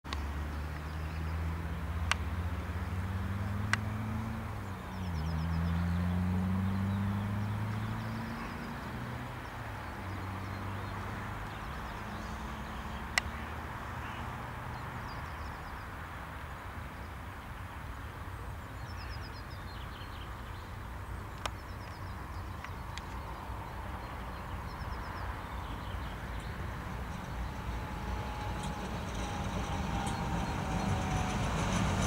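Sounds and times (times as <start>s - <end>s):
faint birdsong: 0.1s - 32.0s
diesel engine running: 26.6s - 32.0s.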